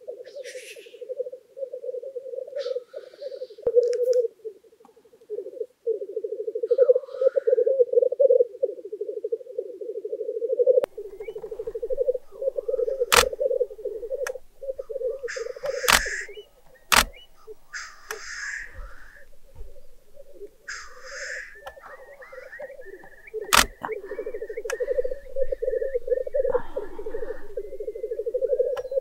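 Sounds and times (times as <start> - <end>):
black grouse bubbling chorus: 0.0 - 29.0
grouse hissing calls: 0.2 - 29.0
camera shutter clicks: 11.4 - 18.3, 23.5 - 23.9.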